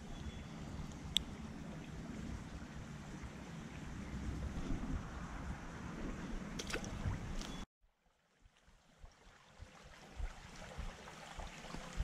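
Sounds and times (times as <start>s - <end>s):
low wind rumble: 0.0s - 7.6s
creek water running over rocks: 6.6s - 12.0s.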